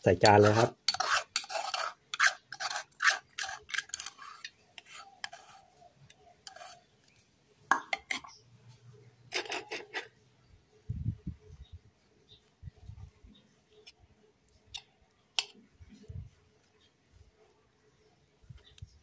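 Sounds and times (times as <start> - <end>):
metal spoon scraping a cup: 0.2 - 5.8, 6.4 - 6.8, 9.3 - 10.1.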